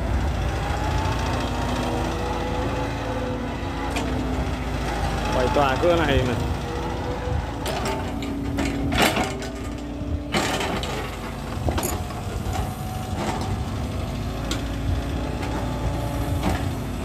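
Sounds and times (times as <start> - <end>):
excavator diesel engine: 0.0 - 17.0
excavator bucket clunks: 7.6 - 13.5.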